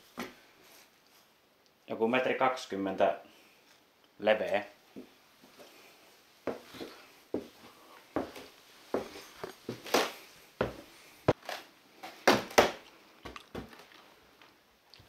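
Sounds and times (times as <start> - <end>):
footsteps on wooden floorboards: 6.5 - 11.4.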